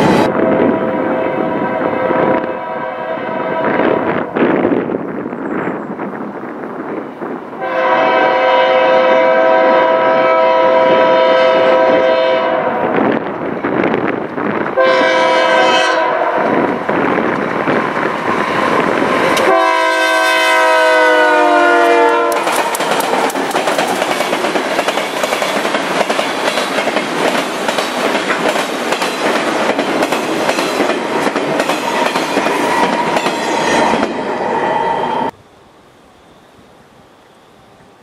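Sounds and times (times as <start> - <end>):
locomotive air horn blast: 0.0 - 4.2, 7.6 - 12.9, 14.8 - 16.6, 19.4 - 22.8
train wheels clickety-clack: 22.1 - 34.3.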